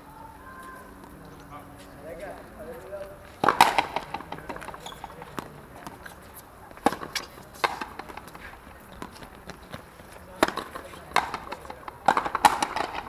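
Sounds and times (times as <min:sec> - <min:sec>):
ball smacking rackets and wall: 0:03.4 - 0:13.0.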